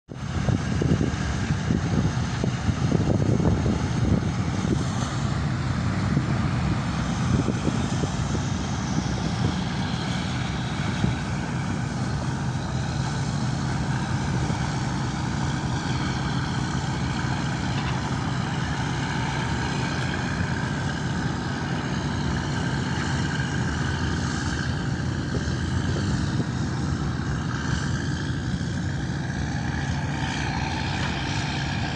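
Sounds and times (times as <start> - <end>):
motor boat engine droning: 0.1 - 31.9.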